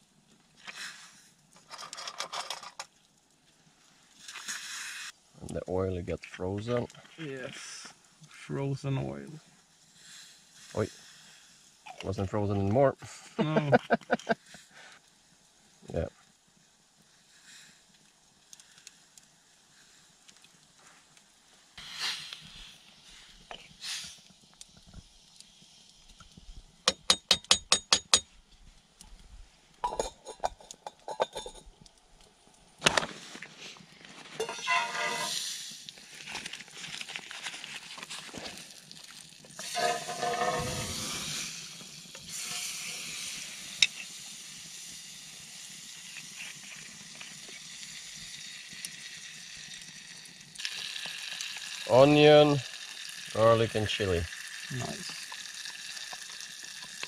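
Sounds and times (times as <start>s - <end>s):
sizzling hiss: 0.0s - 57.0s
sharp taps on metal pot: 26.9s - 28.3s.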